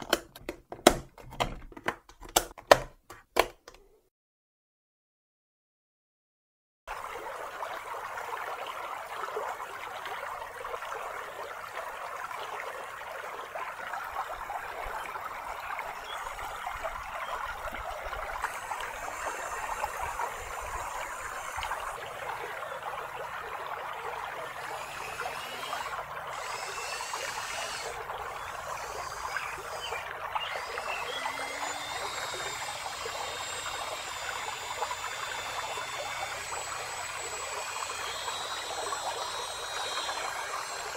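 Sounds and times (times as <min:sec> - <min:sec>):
creek water flowing over stones: 0:06.9 - 0:40.9.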